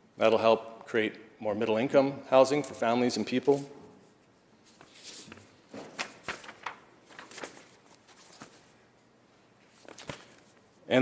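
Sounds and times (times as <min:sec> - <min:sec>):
paper rustling and crackling: 0:04.6 - 0:08.8, 0:09.7 - 0:10.6.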